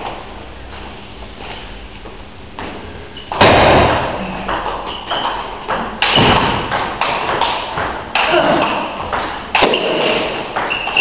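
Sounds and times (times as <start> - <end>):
loud knock: 3.4 - 4.2, 5.7 - 8.4.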